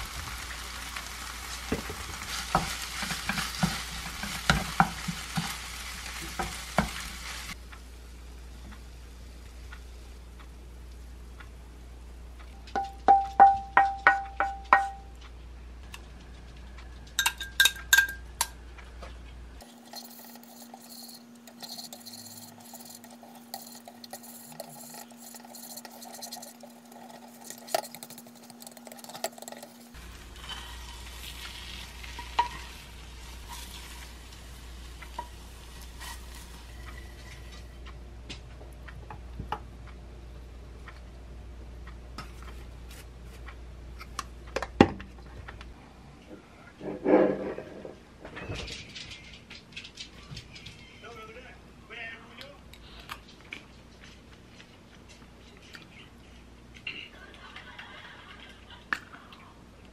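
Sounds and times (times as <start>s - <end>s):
light sizzle: 0.0s - 41.2s
egg stirred and scraped in pan: 0.2s - 7.6s, 19.6s - 37.9s
low steady hum: 7.5s - 59.9s
spatula clinking on dishes: 17.2s - 18.4s, 19.6s - 30.7s, 32.0s - 32.8s.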